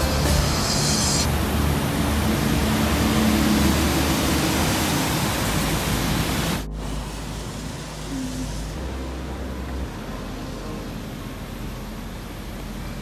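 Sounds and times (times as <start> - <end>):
loud rushing hiss: 0.0 - 9.6
traffic noise: 0.0 - 13.0.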